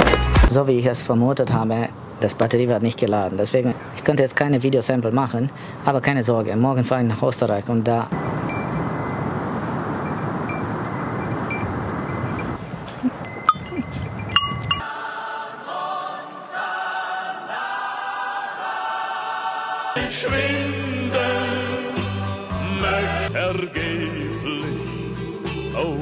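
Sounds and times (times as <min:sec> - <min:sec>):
rushing wind: 0:08.1 - 0:14.9
small bells tinkling: 0:08.1 - 0:14.9
choir-like background music: 0:14.8 - 0:26.0.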